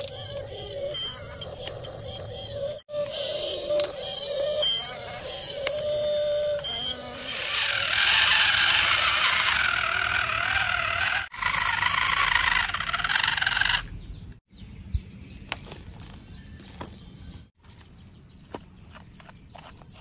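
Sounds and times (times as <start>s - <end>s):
toy truck electric motor whining: 0.0s - 14.0s.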